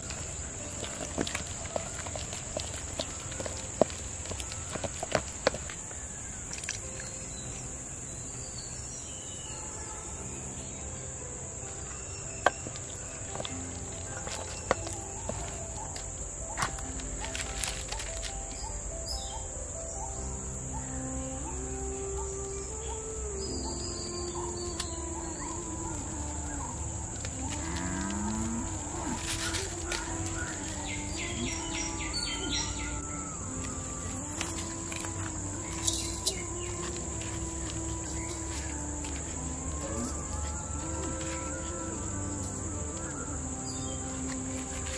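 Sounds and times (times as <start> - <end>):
dry fronds crackling: 0.0 - 7.9, 10.2 - 19.0, 19.6 - 44.9
bird chirps: 0.0 - 44.9
insects droning: 0.0 - 44.9
low wavering calls: 9.3 - 44.9.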